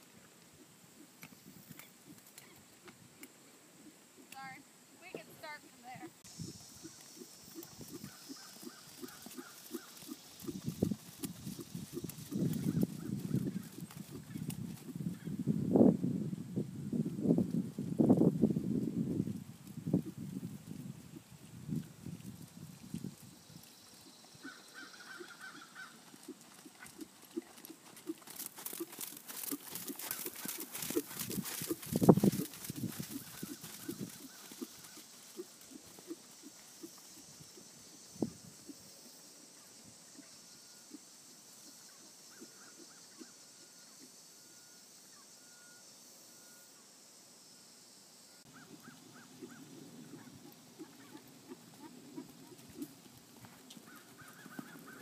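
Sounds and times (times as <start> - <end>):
horse hooves trotting on sand: 3.8 - 15.3, 17.1 - 38.8, 48.5 - 55.0
faint bird calls: 6.4 - 10.5, 24.0 - 26.4, 41.7 - 45.8, 48.5 - 52.9, 53.8 - 55.0.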